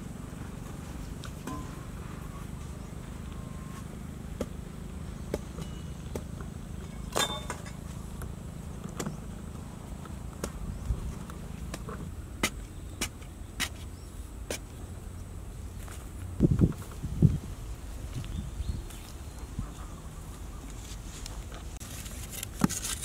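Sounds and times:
steady low rumble: 7.7s - 21.8s.

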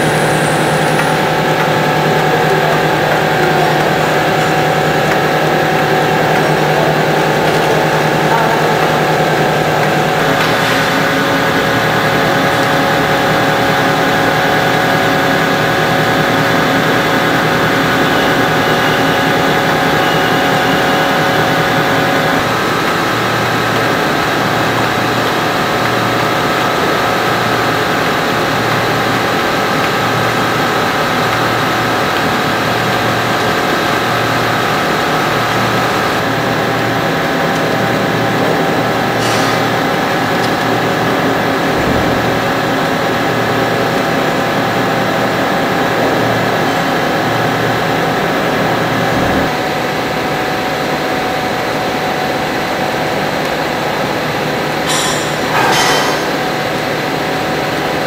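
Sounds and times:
loud machine drone: 0.0s - 58.0s.

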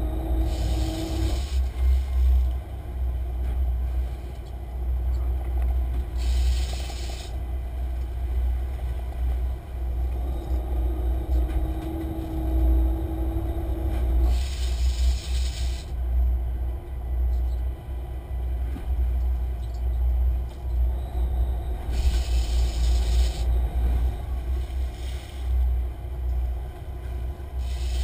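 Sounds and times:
boat engine rumble: 0.0s - 28.0s
spray hiss: 0.4s - 1.7s, 6.2s - 7.4s, 14.2s - 15.9s, 21.9s - 23.5s, 27.6s - 28.0s.

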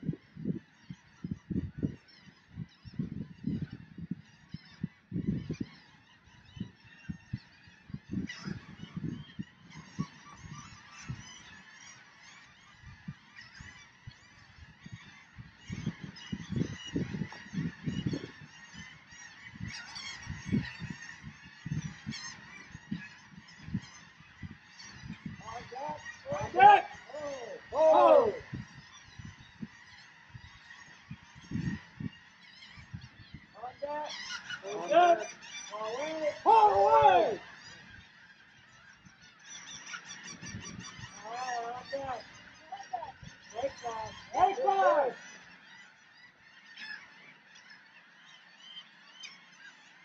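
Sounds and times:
birds calling: 0.0s - 50.0s.

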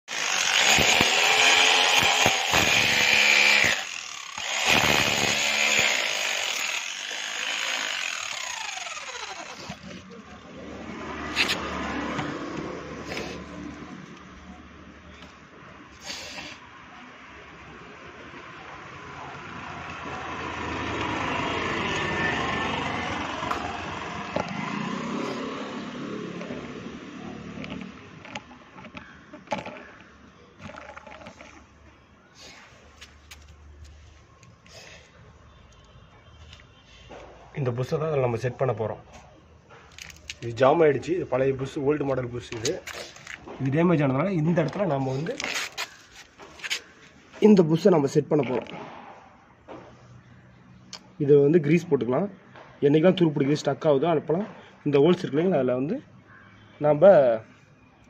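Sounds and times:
power tool whine winding down: 0.1s - 10.0s
motor vehicle passing: 9.1s - 14.6s, 18.9s - 29.2s.

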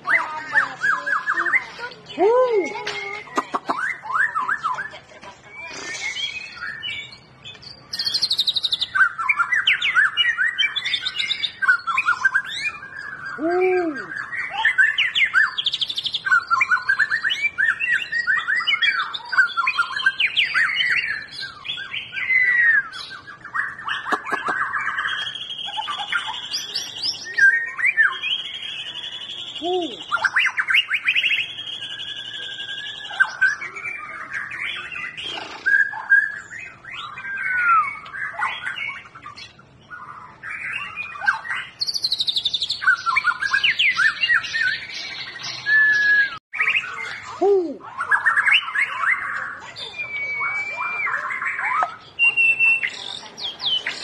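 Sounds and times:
bird singing whistled phrases: 0.0s - 54.0s.

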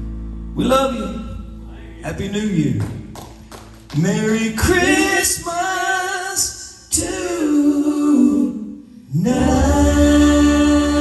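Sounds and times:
man and woman singing in harmony: 4.3s - 11.0s.

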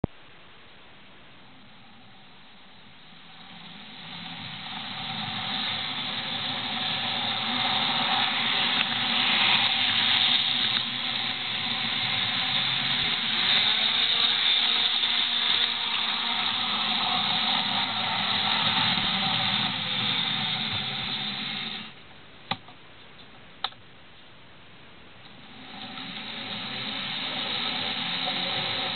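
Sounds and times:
model train motor whirring: 3.1s - 22.0s, 25.3s - 28.9s.

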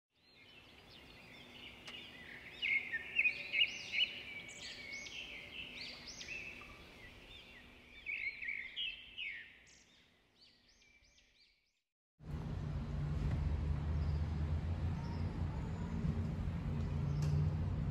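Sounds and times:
small birds chirping: 0.2s - 11.7s
low outdoor rumble: 12.2s - 17.9s.

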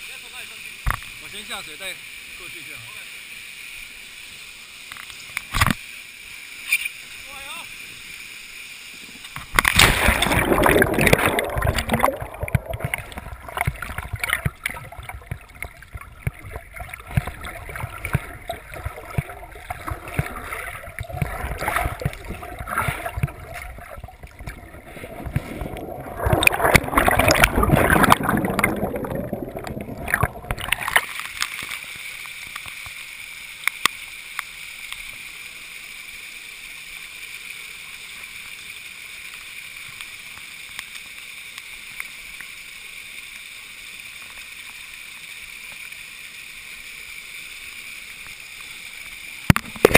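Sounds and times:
steady hiss: 0.0s - 9.6s, 30.8s - 49.8s
underwater water sloshing: 9.4s - 31.8s.

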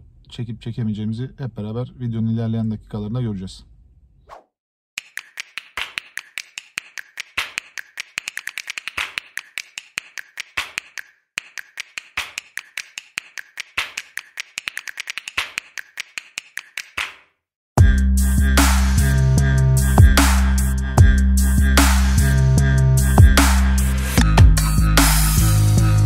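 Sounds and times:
fast sharp clicks: 5.0s - 17.2s.

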